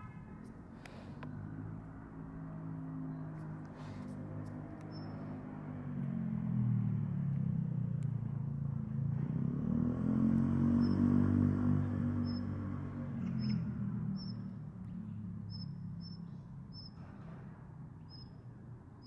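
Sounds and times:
vehicle engine humming: 0.0s - 19.0s
high bird chirps: 4.9s - 5.2s, 13.4s - 14.5s, 15.5s - 17.0s.

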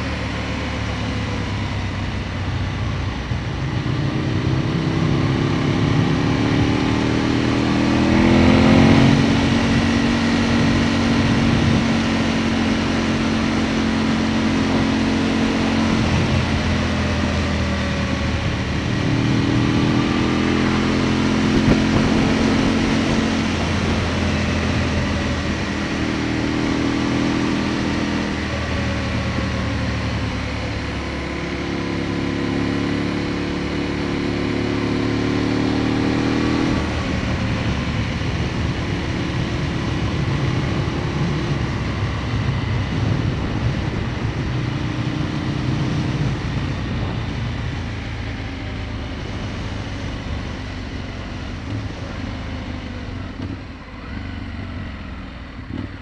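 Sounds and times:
motorcycle engine revving: 0.0s - 56.0s
wind rushing: 21.1s - 25.6s.

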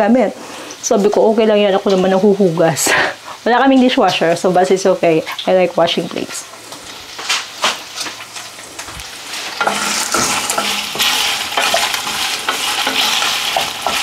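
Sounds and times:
dishes clinking: 9.6s - 14.0s.

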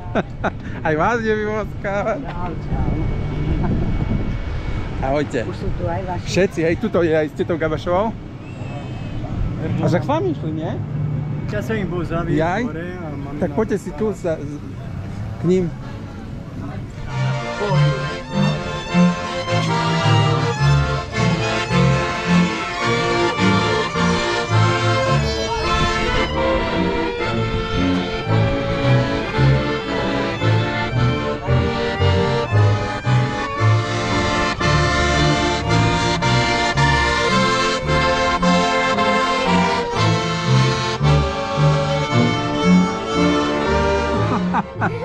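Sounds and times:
accordion folk music: 0.0s - 8.1s, 8.8s - 45.0s
pulsing bass line: 17.1s - 45.0s.

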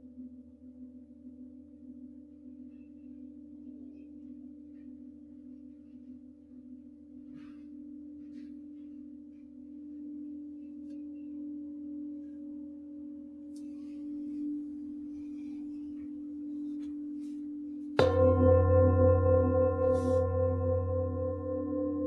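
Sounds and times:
metal singing bowl ringing: 14.1s - 22.0s
deeper singing bowl struck: 17.9s - 22.0s.

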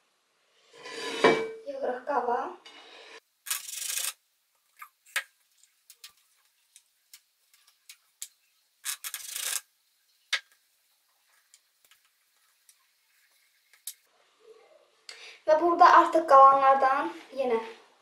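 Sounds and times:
mug rim scraping on table: 0.8s - 1.6s.

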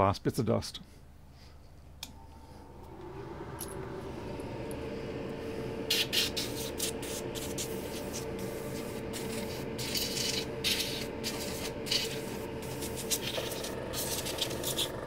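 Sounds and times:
compressed air hissing: 4.8s - 15.0s.

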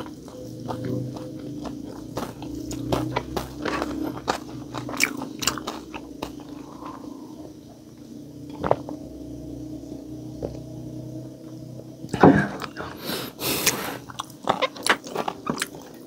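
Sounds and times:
close-up chewing: 0.0s - 7.6s, 12.6s - 16.0s
crispy food crunching: 0.0s - 7.6s, 13.6s - 16.0s.

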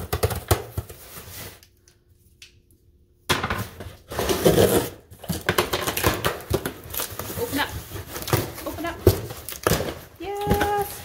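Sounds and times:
cardboard tearing and rustling: 4.0s - 11.0s.

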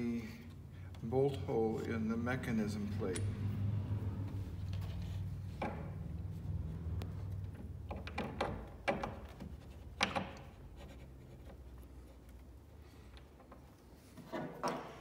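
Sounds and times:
plastic and metal parts knocking: 7.5s - 10.6s.

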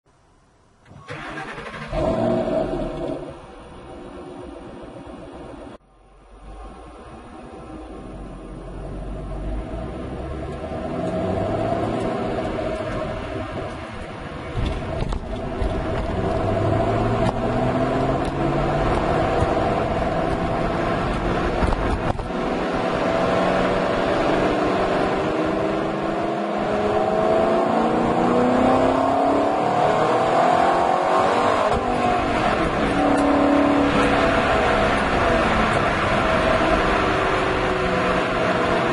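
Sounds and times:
car engine exhaust revving: 14.5s - 38.9s.

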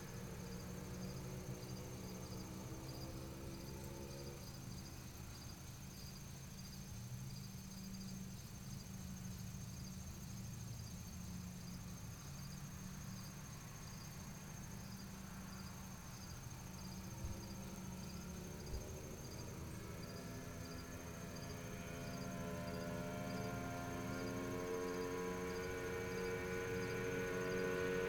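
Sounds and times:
crickets chirping: 0.0s - 28.0s
distant motorized bicycle engine: 9.2s - 28.0s.

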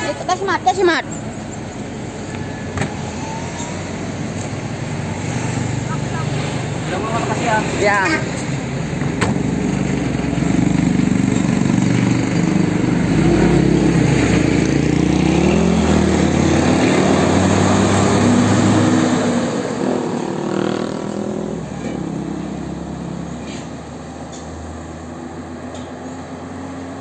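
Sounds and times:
bus diesel engine pulling away: 0.0s - 27.0s.

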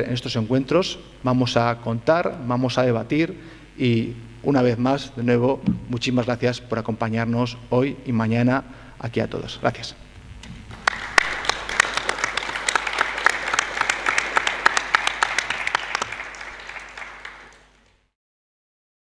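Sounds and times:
audience applauding: 10.7s - 18.0s.

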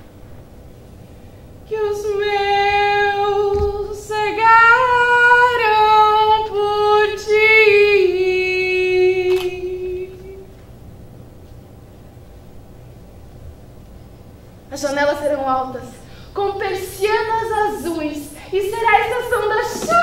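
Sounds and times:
woman singing long notes: 16.4s - 20.0s.

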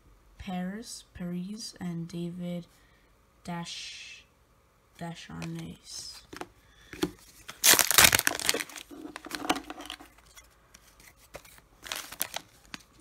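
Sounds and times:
card pack wrapper crinkling: 5.4s - 13.0s.

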